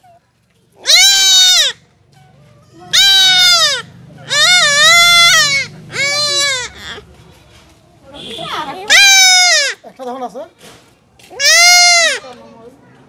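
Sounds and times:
goat kid bleating: 2.9s - 7.0s, 11.4s - 12.3s.

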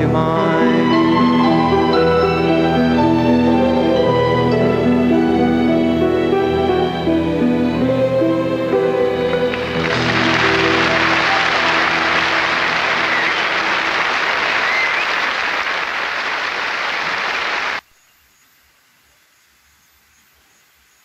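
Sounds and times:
song: 0.0s - 17.6s
faint outdoor background: 0.0s - 21.0s
audience applause: 9.3s - 17.8s
faint whistles: 10.5s - 17.8s.

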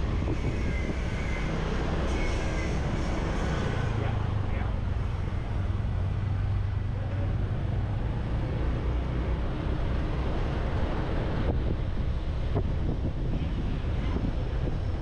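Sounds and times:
wind buffeting microphone: 0.0s - 6.0s, 9.4s - 15.0s.

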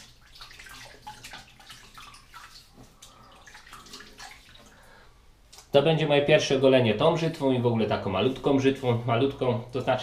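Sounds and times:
water splashing in sink: 0.0s - 5.0s.

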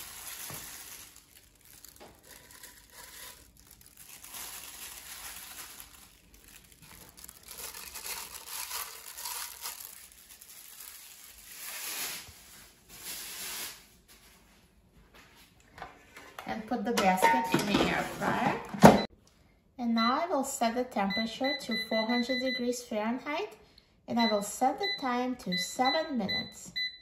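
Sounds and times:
plastic glove crinkling: 0.0s - 15.1s.

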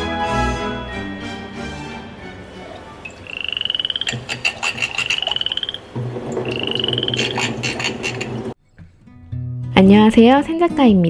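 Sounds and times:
high trilled animal call: 3.0s - 5.9s, 6.5s - 8.2s.

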